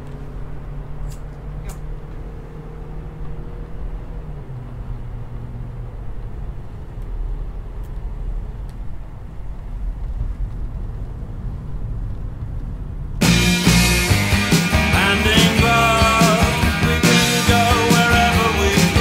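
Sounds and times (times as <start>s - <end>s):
car driving rumble: 0.0s - 19.0s
loud rock music: 13.2s - 19.0s.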